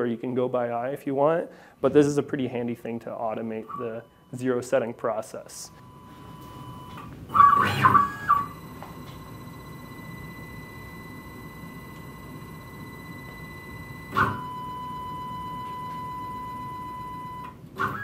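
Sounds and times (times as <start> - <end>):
stepper motors whining: 5.8 - 18.0.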